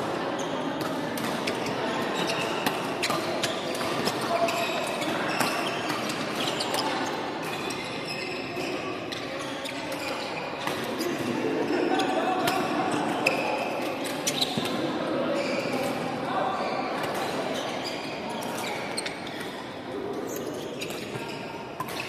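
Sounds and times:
sneakers squeaking on wooden floor: 1.4 - 11.3, 14.1 - 14.7, 15.3 - 15.9, 16.6 - 19.6, 20.3 - 22.0.

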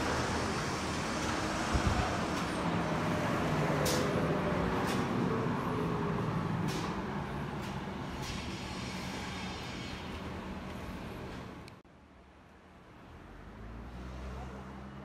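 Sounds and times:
vehicle engine and tyre noise: 0.0 - 15.0.

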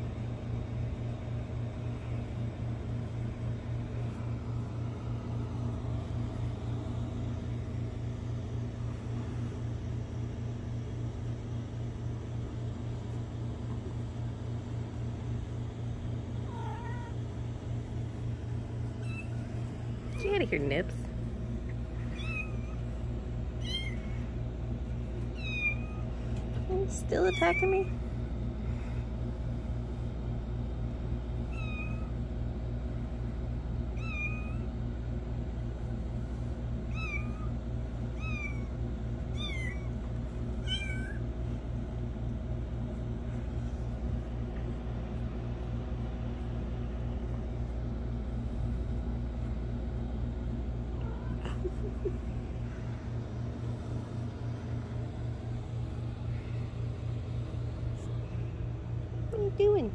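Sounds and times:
kitten mewing: 16.4 - 17.3, 22.1 - 22.8, 23.6 - 24.3, 25.4 - 26.1, 36.9 - 37.6, 38.2 - 40.0, 40.6 - 41.3, 50.8 - 52.4
kitten purring: 50.8 - 55.2.

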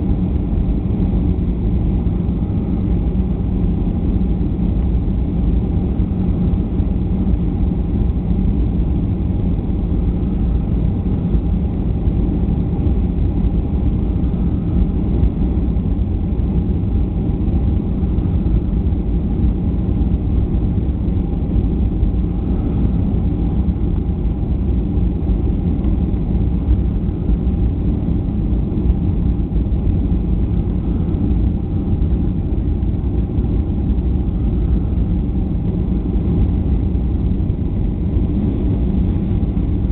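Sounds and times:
faint steady tone: 0.0 - 39.9
jet cabin engine hum: 0.0 - 39.9
airflow rush: 19.8 - 39.9.

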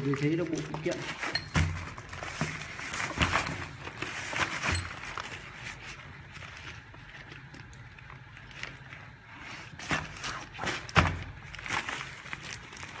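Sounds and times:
bag and cardboard rustling: 0.0 - 7.5.

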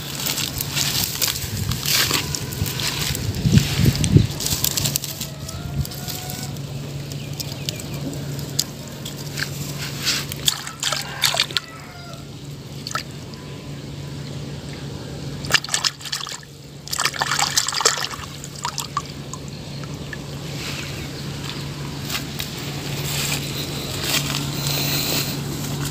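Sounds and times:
hand splashing in shallow water: 15.5 - 19.1.

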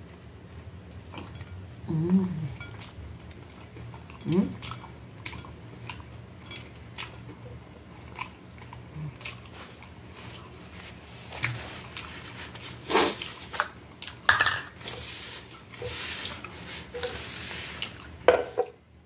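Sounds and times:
wet chewing mouth sounds: 0.8 - 14.2.

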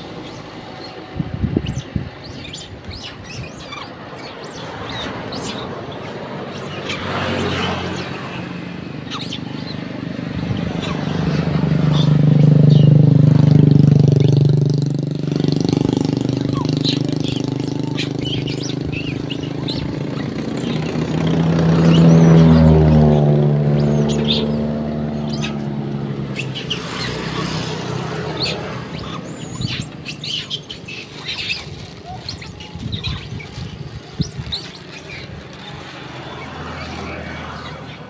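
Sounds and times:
monkeys chirping and squeaking: 0.0 - 38.0
vehicle engine hum passing: 0.0 - 38.0.

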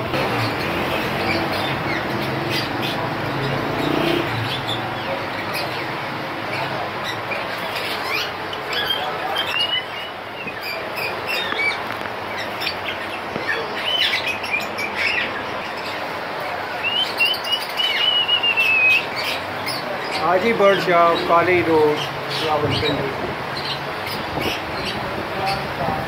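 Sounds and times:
parrots chirping and squawking: 0.0 - 26.0
wavering whistle-like bird call: 17.8 - 19.1.

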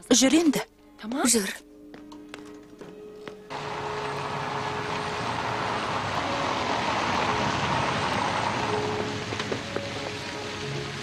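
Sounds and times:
car driving up: 3.5 - 11.0.

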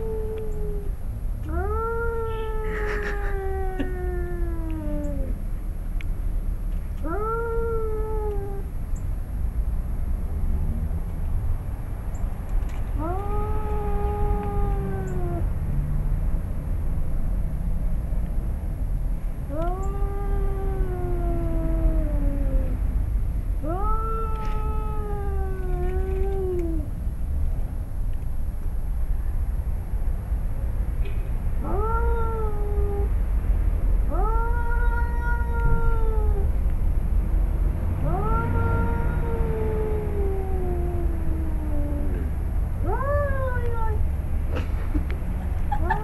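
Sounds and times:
cat yowling: 0.0 - 0.9, 1.5 - 5.4, 7.0 - 8.7, 13.0 - 15.5, 19.5 - 22.8, 23.6 - 26.9, 31.6 - 33.1, 34.1 - 36.6, 38.0 - 44.0, 45.7 - 46.0
low steady rumble: 0.0 - 46.0.

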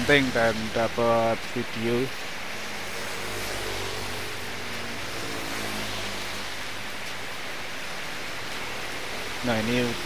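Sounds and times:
heavy rain on road: 0.0 - 10.0
motor scooter passing: 2.5 - 6.9
car driving past: 2.6 - 6.8.

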